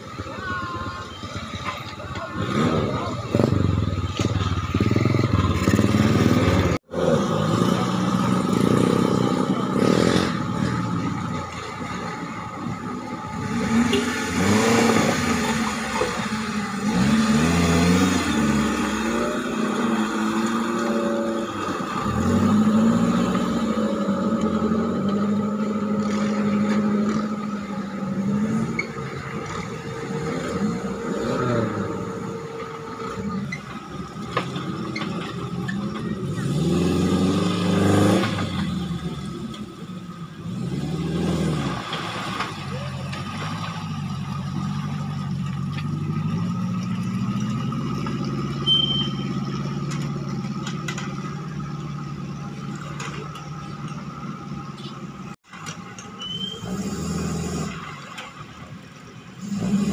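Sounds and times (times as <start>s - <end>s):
off-road car engines revving: 0.0s - 59.9s
water splashing: 10.8s - 33.1s, 41.5s - 54.1s.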